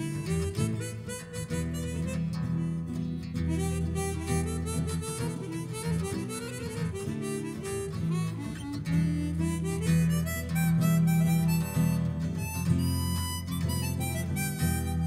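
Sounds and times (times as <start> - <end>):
harmonica solo: 0.0 - 15.0.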